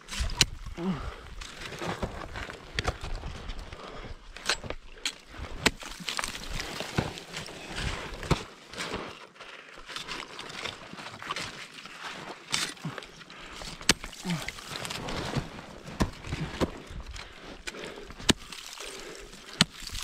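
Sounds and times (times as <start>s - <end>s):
crunching and scraping: 0.0s - 20.0s
ice axe striking ice: 4.4s - 8.6s, 13.7s - 16.8s, 18.2s - 20.0s.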